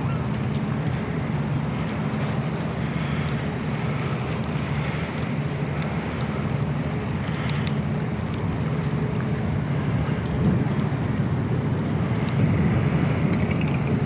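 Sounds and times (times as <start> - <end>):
low engine drone: 0.0 - 14.0
wind noise on microphone: 9.5 - 14.0.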